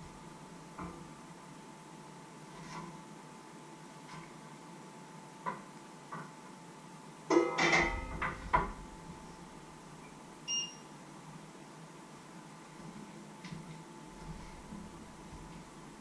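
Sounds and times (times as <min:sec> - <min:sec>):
metal pots and lids clanking: 0:07.3 - 0:08.3
short electronic beep: 0:10.5 - 0:10.8.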